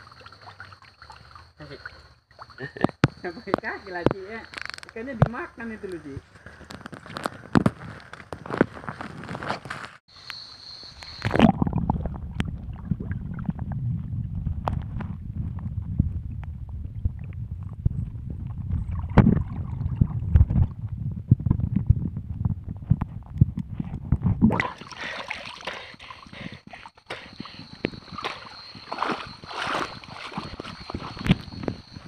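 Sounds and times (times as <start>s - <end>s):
water sloshing around camera: 0.0s - 9.9s, 11.0s - 32.0s
muffled underwater rumble: 11.3s - 25.1s
knocks and bumps on camera: 14.0s - 24.6s.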